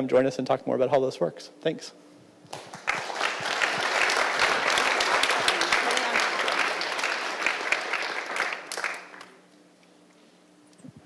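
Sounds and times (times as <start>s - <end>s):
audience applauding: 2.5s - 9.4s.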